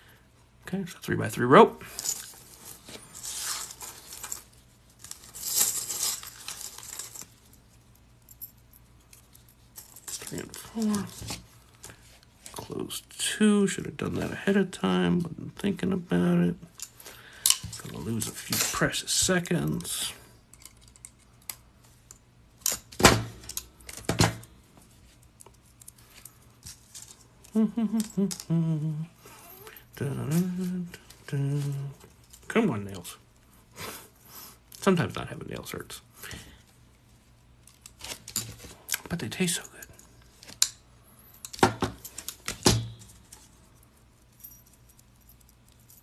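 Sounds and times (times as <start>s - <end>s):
metal rings clinking and rattling: 1.8s - 11.4s, 19.6s - 28.5s, 39.8s - 46.0s.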